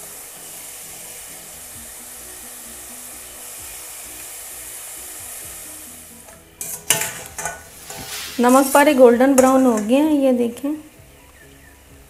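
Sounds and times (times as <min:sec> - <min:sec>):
dough deep-frying in oil: 0:00.0 - 0:10.2.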